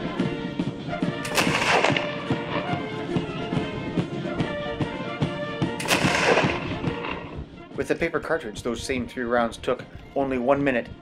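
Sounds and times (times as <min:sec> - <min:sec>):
background music: 0:00.0 - 0:11.0
rifle shots cracking: 0:01.2 - 0:02.7, 0:05.8 - 0:07.4.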